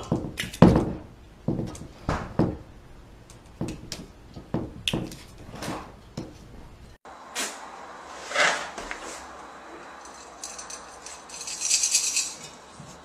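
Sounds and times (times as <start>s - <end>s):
kitten scratching and rattling: 9.9s - 13.0s.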